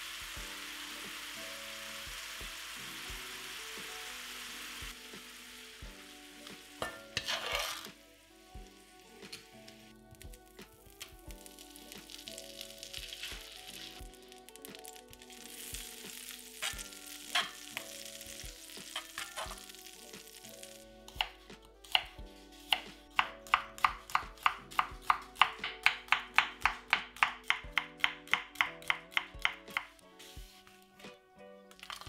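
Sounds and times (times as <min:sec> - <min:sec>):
butter sizzling in frying pan: 0:00.0 - 0:30.5
knife chopping on wooden board: 0:21.2 - 0:22.1, 0:22.7 - 0:29.9.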